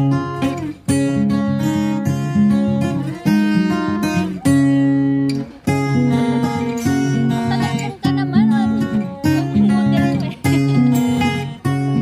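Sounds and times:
strummed acoustic guitar chords: 0.0 - 12.0.

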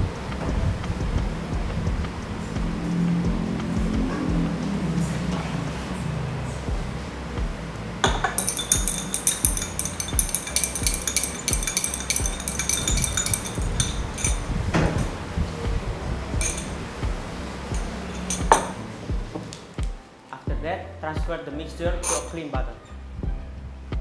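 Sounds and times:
background music: 0.0 - 24.0
glass rod clinking in beaker: 8.0 - 15.1, 16.4 - 16.9, 17.7 - 18.9, 22.0 - 22.5.

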